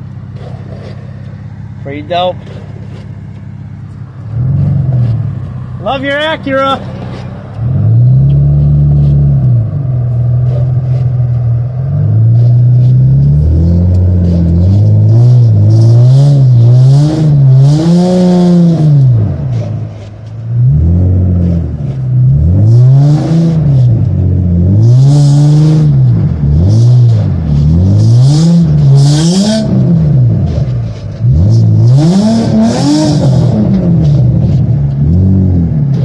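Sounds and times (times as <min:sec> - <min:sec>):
car engine revving: 0:00.0 - 0:36.0.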